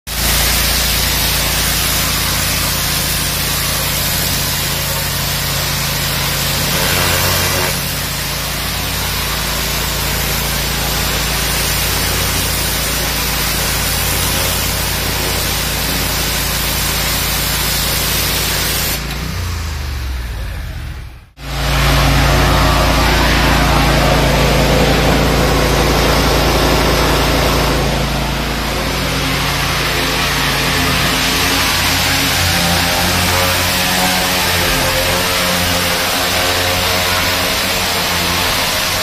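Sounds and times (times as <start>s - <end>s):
water jet hissing onto concrete: 0.1s - 19.2s, 29.2s - 39.0s
engine humming: 2.7s - 39.0s.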